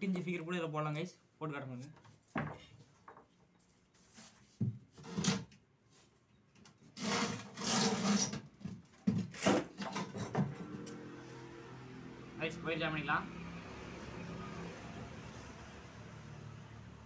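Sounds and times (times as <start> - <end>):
wood scraping on concrete: 1.8 - 6.1, 6.8 - 11.4
wooden cabinet knocks and thuds: 2.3 - 3.2, 4.6 - 4.9, 8.6 - 10.7.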